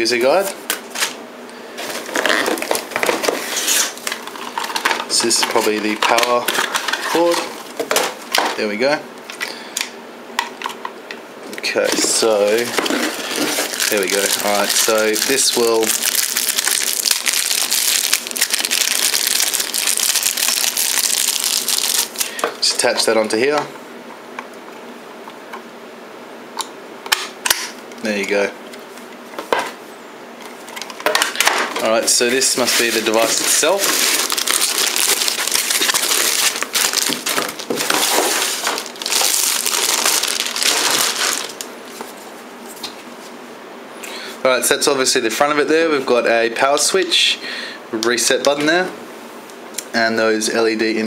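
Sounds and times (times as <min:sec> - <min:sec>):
plastic bag crinkling: 0:12.1 - 0:22.4, 0:31.8 - 0:41.7.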